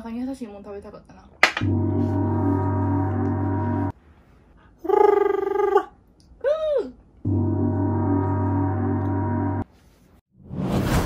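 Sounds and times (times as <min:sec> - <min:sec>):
droning tone: 0:01.6 - 0:03.9, 0:07.3 - 0:09.6
tone rising and falling in pitch: 0:01.6 - 0:03.9, 0:07.3 - 0:09.6
wavering held tone: 0:01.6 - 0:03.9, 0:07.3 - 0:09.6.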